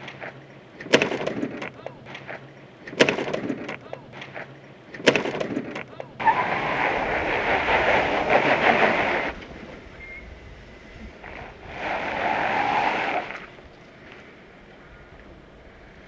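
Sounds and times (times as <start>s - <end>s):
vehicle engine crawling: 5.4s - 13.7s.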